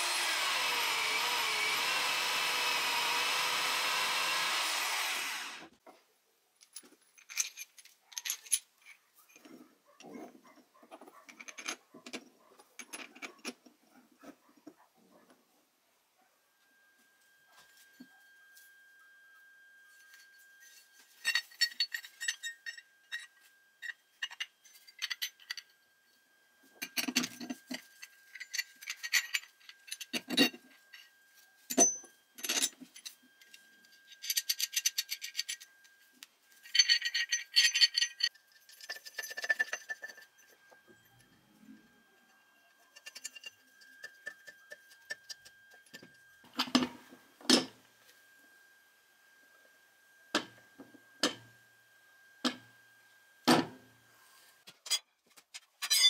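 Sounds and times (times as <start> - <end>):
metal parts clinking: 6.6 - 9.5, 11.3 - 12.2, 20.1 - 25.8, 26.8 - 41.3, 42.6 - 46.8, 54.8 - 56.0.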